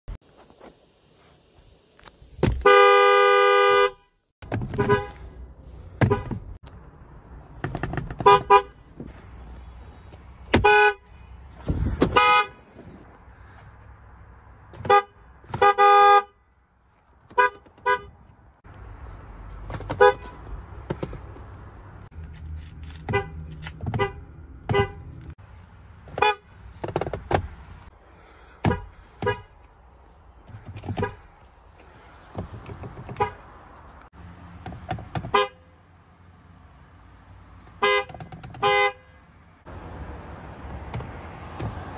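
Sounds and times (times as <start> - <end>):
truck horn honking: 2.6 - 4.1, 4.7 - 5.2, 8.2 - 8.8, 10.5 - 11.1, 12.1 - 12.7, 14.8 - 16.4, 17.3 - 18.2, 19.9 - 20.5, 26.1 - 26.5, 28.6 - 29.6, 35.3 - 35.7, 37.8 - 39.2.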